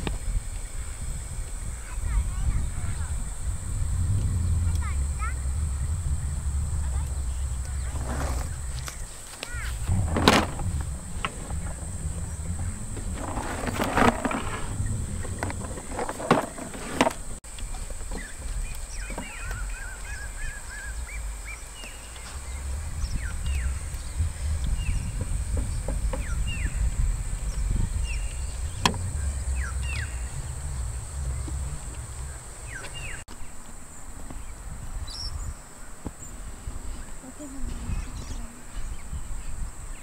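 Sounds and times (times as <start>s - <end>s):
birds chirping: 0.0s - 40.0s
wind rumble on microphone: 0.0s - 40.0s
bird warbling call: 18.2s - 25.3s, 27.5s - 33.2s.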